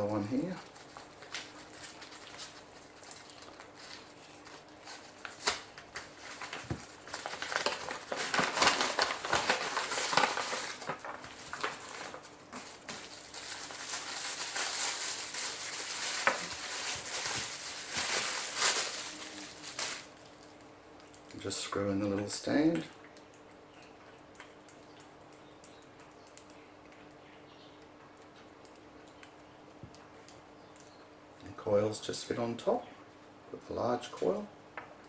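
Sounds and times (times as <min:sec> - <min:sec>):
wrapping crinkling and rustling: 0:00.0 - 0:21.5.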